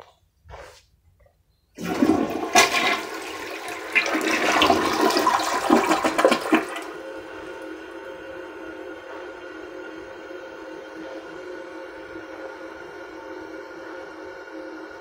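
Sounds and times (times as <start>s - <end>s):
toilet flushing: 1.8s - 10.6s.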